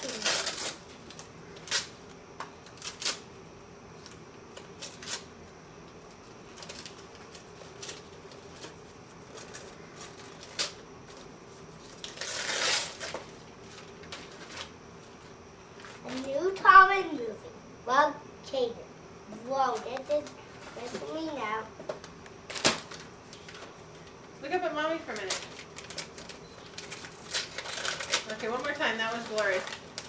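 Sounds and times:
paper tearing rip: 0:00.0 - 0:00.9, 0:11.9 - 0:13.2, 0:26.9 - 0:28.4
wrapping paper crinkling: 0:00.0 - 0:02.0, 0:06.2 - 0:16.4, 0:25.1 - 0:30.0.

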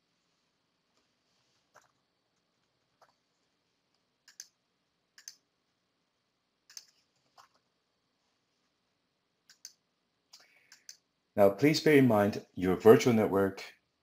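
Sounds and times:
computer mouse and keyboard clicks: 0:01.7 - 0:03.2, 0:03.9 - 0:04.6, 0:05.2 - 0:05.4, 0:06.7 - 0:07.7, 0:09.5 - 0:11.0.

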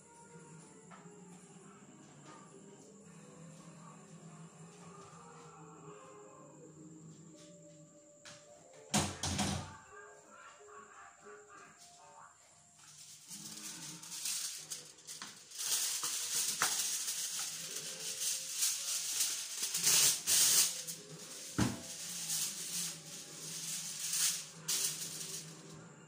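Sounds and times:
aluminium foil crinkling: 0:12.8 - 0:25.7.

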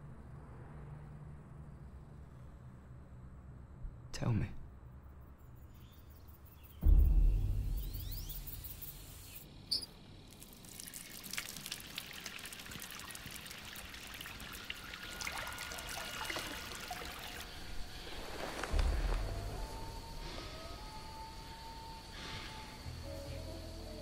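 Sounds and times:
deep boom: 0:06.8 - 0:09.3.

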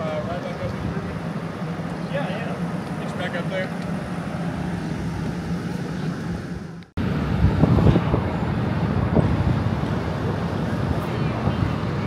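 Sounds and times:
outdoor noise: 0:00.0 - 0:12.0.

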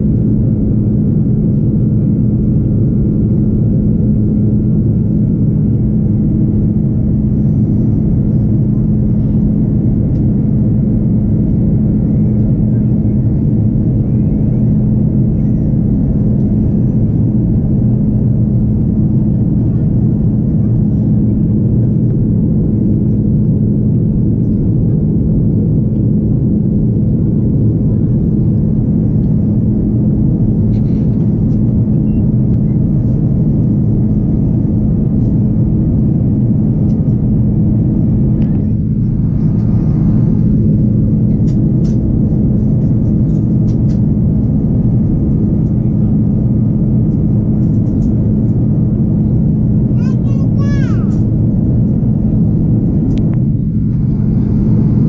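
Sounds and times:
constant low hum: 0:00.0 - 0:55.0
jet engine drone: 0:00.0 - 0:55.0
rushing airflow: 0:32.9 - 0:45.6, 0:51.2 - 0:55.0.

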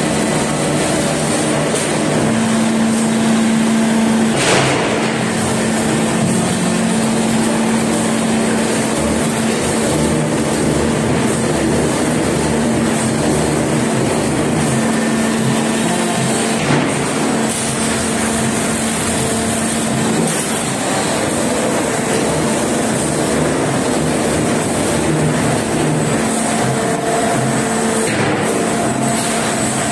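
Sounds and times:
machinery motors and conveyor noise: 0:00.0 - 0:29.9
sharp knock: 0:04.4 - 0:05.0.

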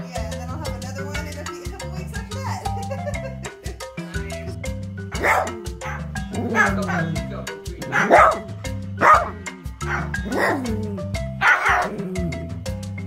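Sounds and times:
background music with steady beat: 0:00.0 - 0:13.0
small dog barking: 0:05.1 - 0:07.2, 0:07.9 - 0:08.4, 0:09.0 - 0:10.7, 0:11.4 - 0:12.0.

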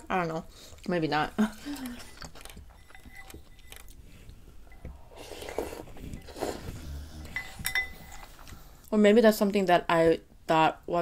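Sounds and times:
slurping soup: 0:03.1 - 0:08.8.

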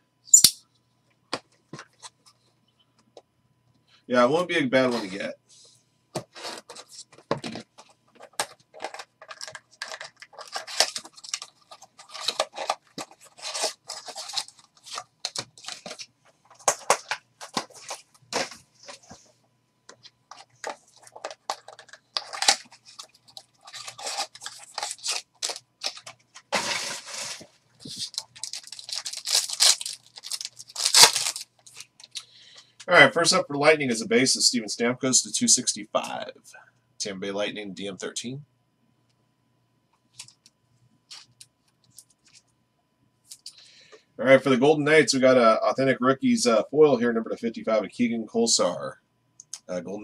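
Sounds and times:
foil packs crinkling: 0:08.2 - 0:19.0, 0:20.3 - 0:32.4
foil wrapper tearing: 0:09.3 - 0:16.0, 0:21.2 - 0:32.2.

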